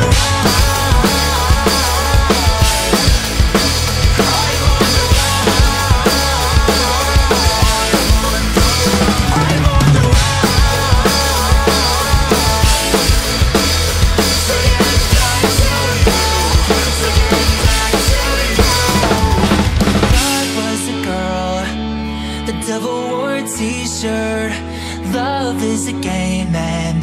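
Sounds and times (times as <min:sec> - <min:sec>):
drum kit played hard: 0:00.0 - 0:21.2
backing music: 0:00.0 - 0:27.0.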